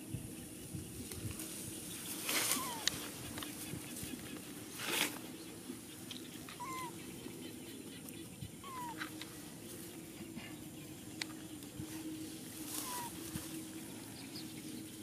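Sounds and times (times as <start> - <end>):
steady low hum: 0.0 - 15.0
baby monkey coo calls: 2.2 - 9.4, 12.6 - 13.4.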